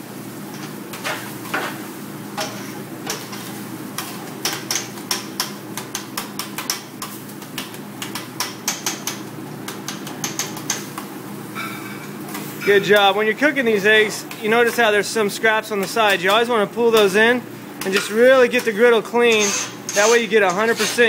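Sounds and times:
metal spatulas clacking on griddle: 0:04.0 - 0:11.0.

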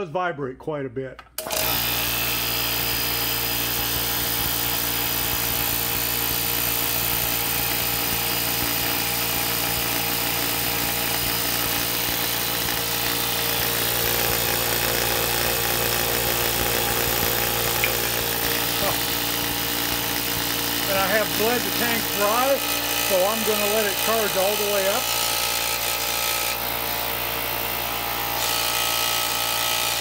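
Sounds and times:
air compressor running: 0:01.4 - 0:30.0.

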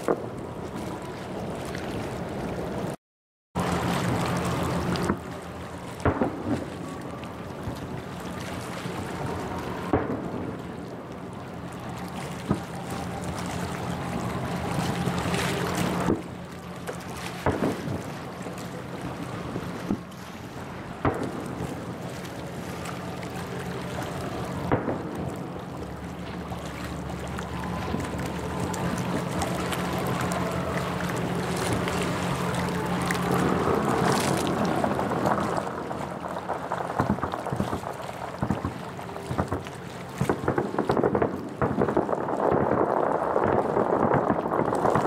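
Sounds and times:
crackling firework pops: 0:17.4 - 0:18.0, 0:38.4 - 0:44.9.

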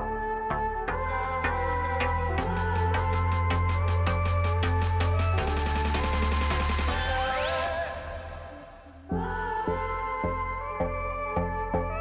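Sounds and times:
bass-heavy music with steady beat: 0:00.0 - 0:12.0
rising sweep: 0:03.0 - 0:09.2.

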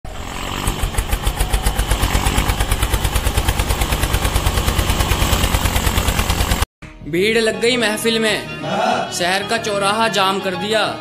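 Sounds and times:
small tractor engine chugging: 0:00.1 - 0:06.7.

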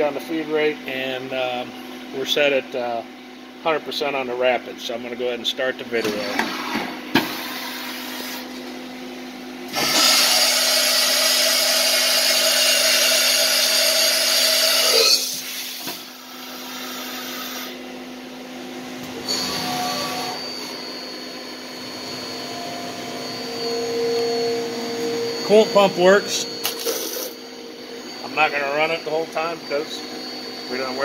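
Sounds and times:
high machine whine: 0:05.1 - 0:31.0
loud machine whirring: 0:09.7 - 0:31.0
machine hum: 0:17.7 - 0:31.0.

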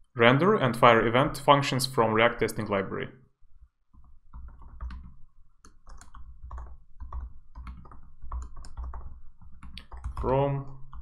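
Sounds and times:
computer keyboard typing: 0:04.0 - 0:11.0.

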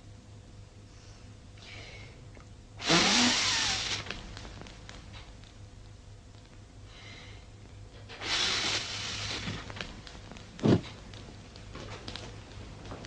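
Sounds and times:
fire crackling: 0:04.0 - 0:06.9, 0:08.8 - 0:13.0.

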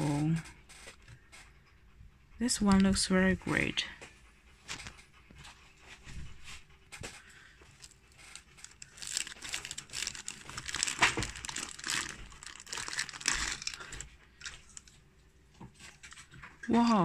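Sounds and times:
plastic bag crinkling: 0:07.7 - 0:15.0.

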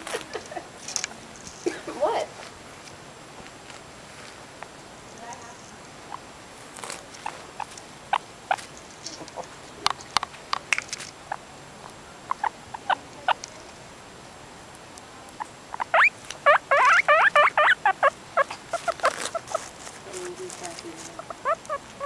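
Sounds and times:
guinea pig squeaking: 0:06.0 - 0:09.4, 0:11.3 - 0:13.5, 0:15.3 - 0:22.0.

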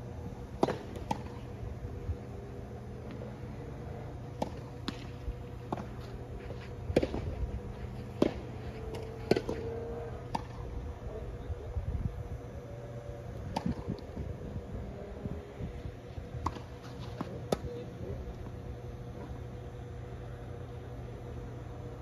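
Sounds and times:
steady low hum: 0:00.0 - 0:22.0
tennis ball hit and bouncing: 0:00.6 - 0:01.4, 0:04.3 - 0:06.1, 0:08.2 - 0:09.7, 0:10.3 - 0:10.6, 0:16.4 - 0:17.8.

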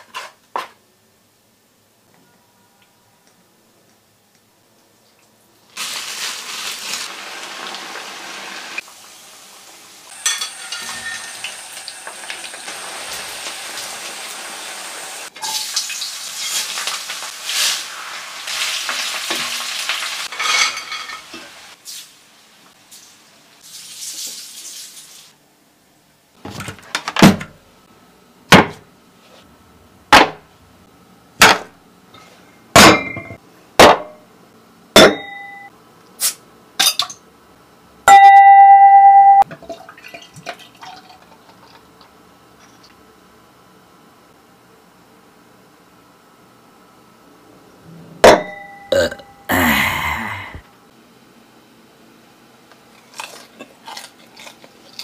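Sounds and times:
food sizzling in hot oil: 0:05.8 - 0:25.4.

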